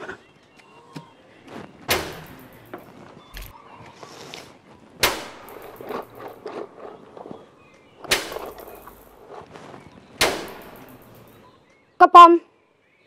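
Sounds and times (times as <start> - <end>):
loud clattering bangs: 1.9 - 2.9, 5.0 - 6.5, 8.0 - 9.4, 10.2 - 11.4.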